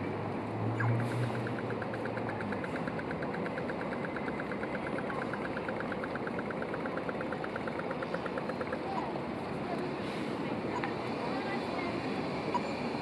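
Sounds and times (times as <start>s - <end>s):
street traffic noise: 0.0s - 13.0s
rapid high ticking: 1.2s - 8.9s.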